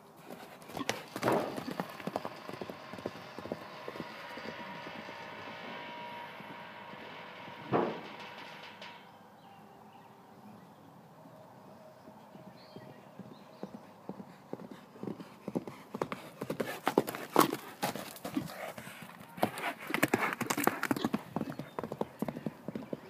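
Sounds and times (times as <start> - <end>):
horse hoofbeats galloping on dirt: 0.0 - 5.8, 12.0 - 23.0.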